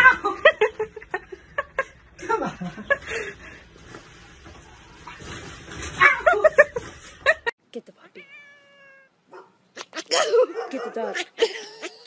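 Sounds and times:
person laughing softly: 11.2 - 12.0.

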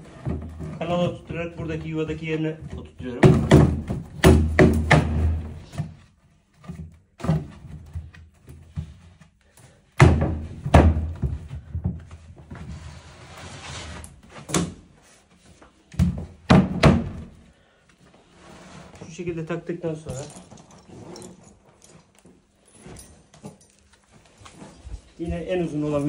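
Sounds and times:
cabinet panels knocking into place: 3.2 - 5.5, 10.0 - 11.9, 16.0 - 17.3.

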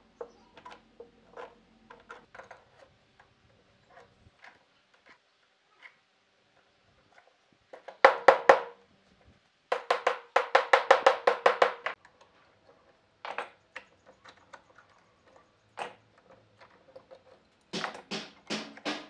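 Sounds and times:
hammer tapping on wood: 8.0 - 8.8, 9.7 - 12.0, 17.8 - 19.0
clamps knocking on bench: 9.7 - 12.0, 17.8 - 19.0.

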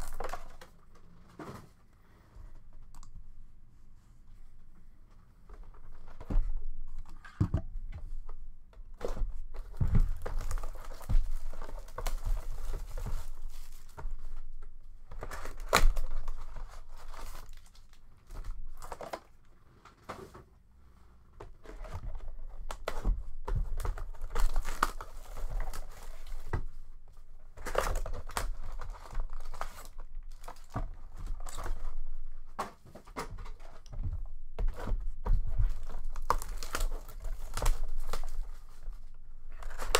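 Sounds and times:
plastic and foil crinkling: 0.0 - 1.4, 9.0 - 20.0, 21.6 - 39.9.

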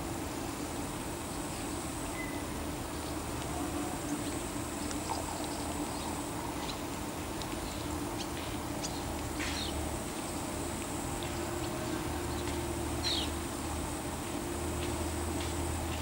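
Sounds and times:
steady high hiss: 0.0 - 16.0.

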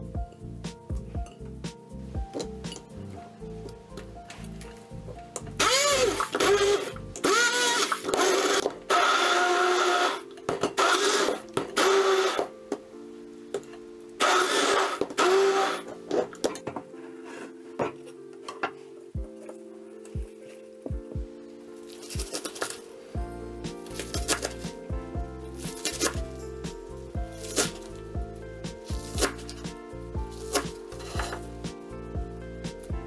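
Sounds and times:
background music: 0.0 - 33.0
immersion blender motor: 5.6 - 10.2, 10.8 - 12.5, 14.2 - 15.9.

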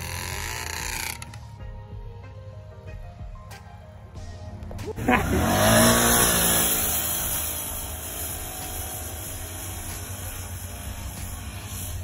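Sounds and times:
atv engine revving: 4.9 - 12.0.

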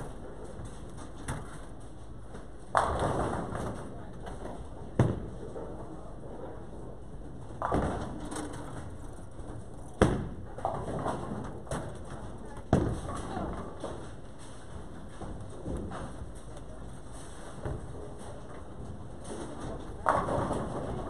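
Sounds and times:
balls thudding on wooden lanes: 0.0 - 21.0
bowling ball crashing into pins: 19.2 - 21.0.

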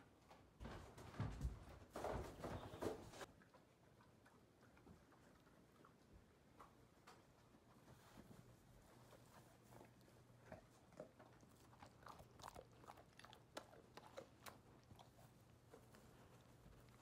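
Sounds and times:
dogs crunching dry kibble: 9.6 - 17.0.

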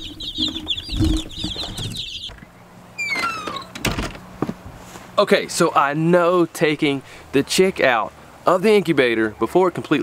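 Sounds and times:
chicks peeping: 0.0 - 3.7
short falling squeak: 3.0 - 3.8.

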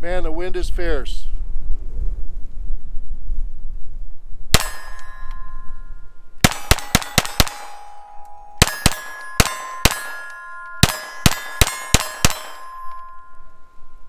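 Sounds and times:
pistol shots: 4.5 - 5.4, 6.4 - 13.4
steel targets ringing: 4.5 - 14.0.

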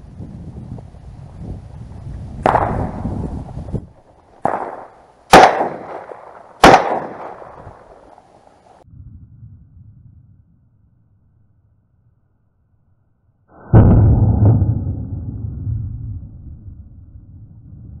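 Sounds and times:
wind buffeting microphone: 0.0 - 4.9
shotgun shots echoing: 2.4 - 3.2, 4.4 - 8.3.

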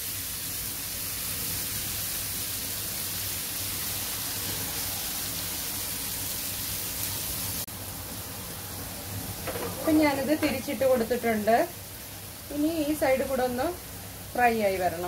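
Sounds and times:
chicken sizzling in frying pan: 0.0 - 15.0.

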